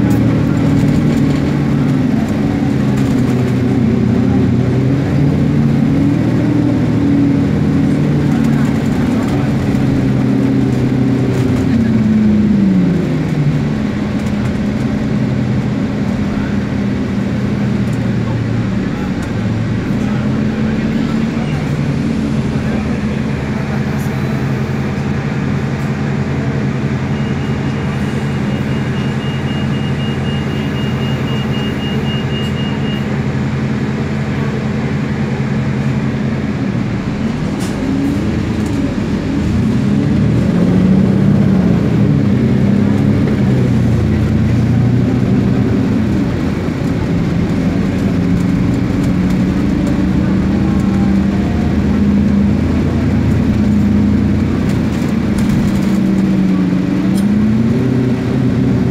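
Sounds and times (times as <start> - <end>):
bus engine: 0.0 - 58.9.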